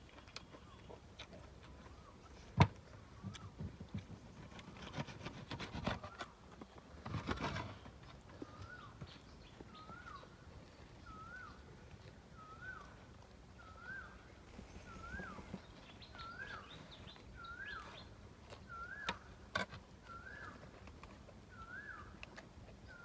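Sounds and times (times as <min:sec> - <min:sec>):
bird chirping: 0:07.5 - 0:19.4, 0:20.0 - 0:23.0.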